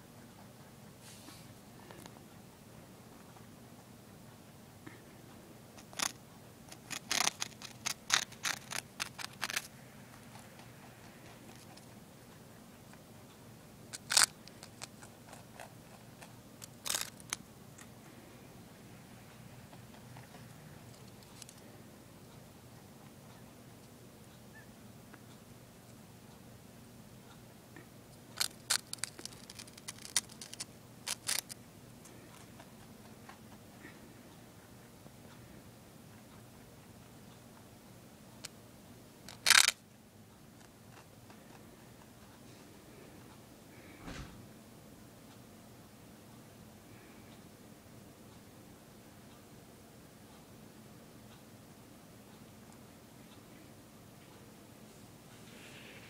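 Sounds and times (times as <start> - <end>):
rabbit crunching dry toast: 5.8 - 13.1, 13.9 - 18.4, 19.5 - 21.7, 28.2 - 34.0, 39.2 - 39.8, 40.5 - 42.5.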